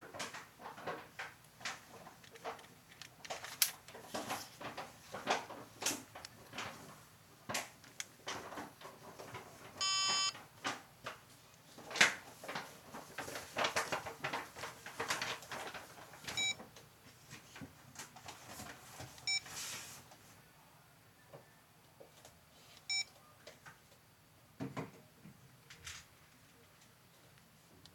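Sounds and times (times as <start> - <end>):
electronic beep: 9.8 - 10.3
short phone beeps: 9.8 - 10.4, 16.4 - 16.6, 22.9 - 23.1.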